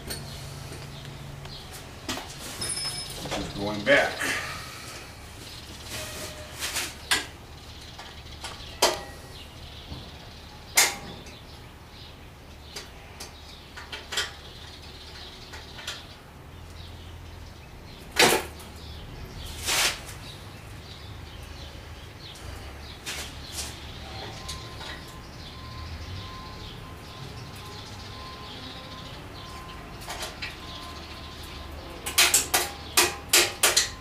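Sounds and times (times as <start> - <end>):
short metal scrape: 5.8 - 7.0, 19.4 - 20.1.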